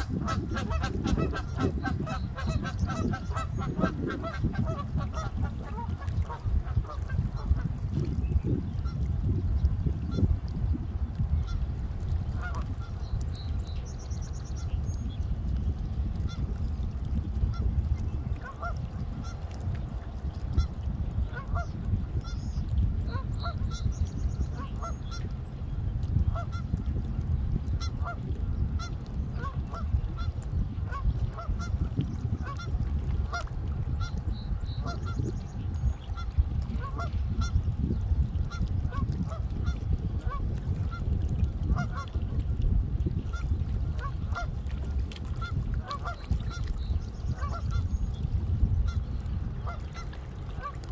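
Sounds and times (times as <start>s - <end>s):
steady low rumble: 0.0s - 50.9s.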